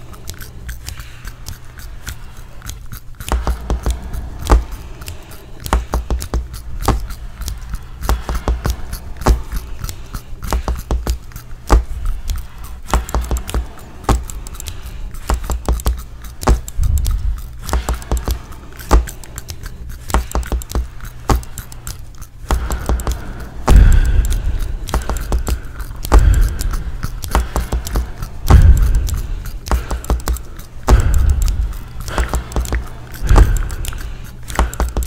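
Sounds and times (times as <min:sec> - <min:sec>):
clicks and clinks of small objects: 0:00.0 - 0:35.0
low thuds: 0:22.6 - 0:30.2, 0:30.9 - 0:33.9.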